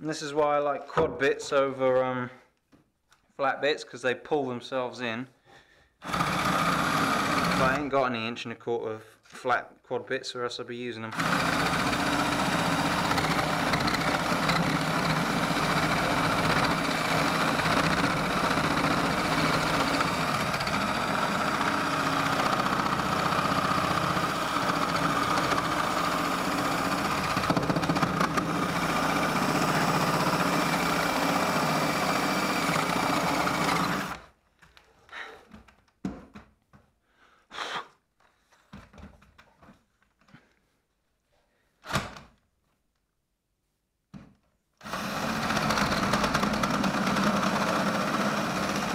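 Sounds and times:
drill boring through wood: 0:06.0 - 0:07.9, 0:11.1 - 0:34.3, 0:44.8 - 0:48.9
knocks and clicks of handling: 0:35.5 - 0:36.9.

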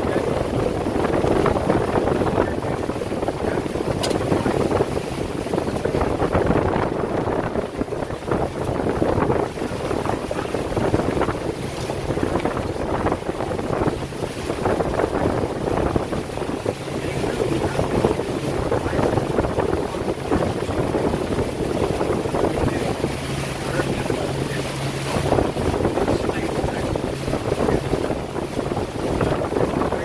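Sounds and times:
boat motor running: 0:00.0 - 0:30.0
wind buffeting microphone: 0:00.0 - 0:30.0.

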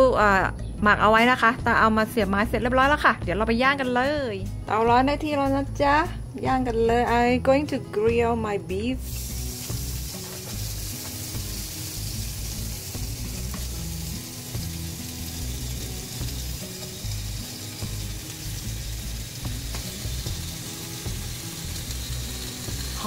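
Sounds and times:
background music: 0:00.0 - 0:23.0
meat sizzling on a grill: 0:08.9 - 0:23.0.

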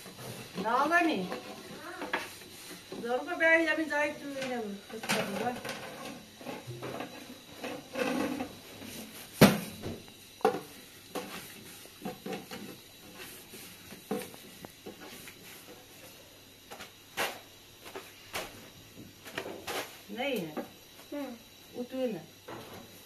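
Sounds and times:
objects knocking and clattering: 0:04.4 - 0:08.6, 0:09.4 - 0:13.2.

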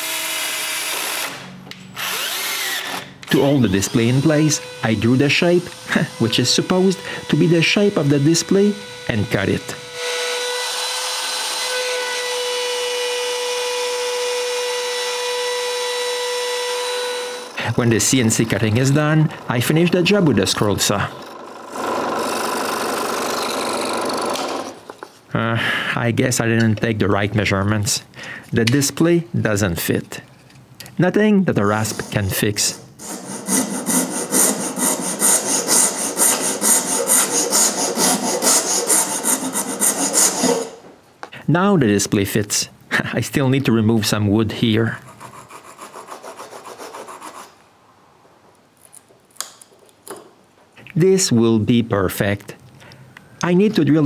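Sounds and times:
router spindle whine: 0:02.0 - 0:12.0
end mill cutting plywood: 0:13.5 - 0:24.8
rasp filing wood: 0:31.6 - 0:40.8, 0:45.1 - 0:47.5.

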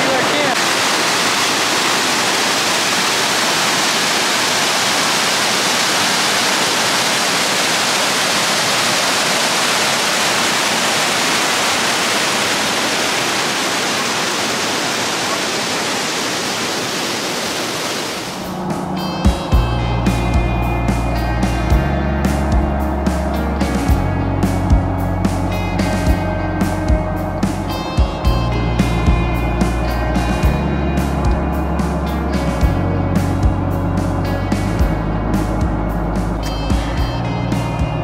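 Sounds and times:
waterfall rushing: 0:00.0 - 0:19.5.

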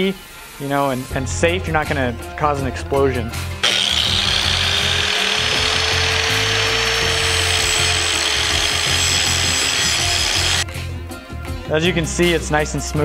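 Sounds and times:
angle grinder grinding metal: 0:03.6 - 0:10.7.

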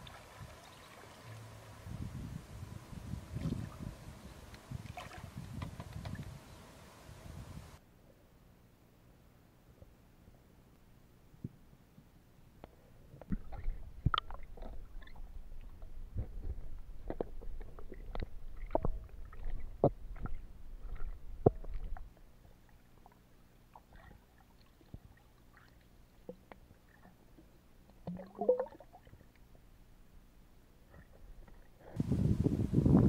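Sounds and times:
sharp underwater knocks and clicks: 0:13.2 - 0:22.2
low underwater rumble: 0:13.3 - 0:24.2, 0:27.1 - 0:29.4.

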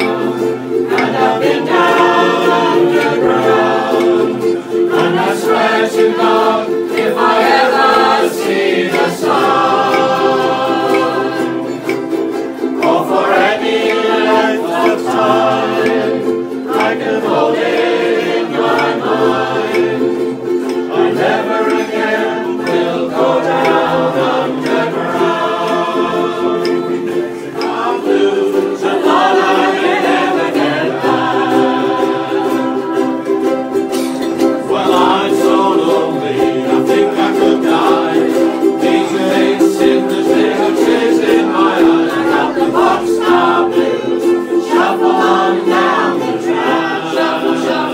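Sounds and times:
group singing in chorus: 0:00.0 - 0:47.9
ukulele ensemble strumming: 0:00.0 - 0:47.9.

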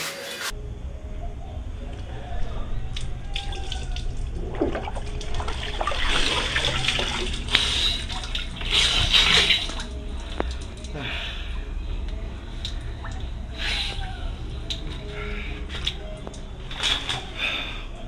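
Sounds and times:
water sloshing in plastic bucket: 0:03.4 - 0:10.7.

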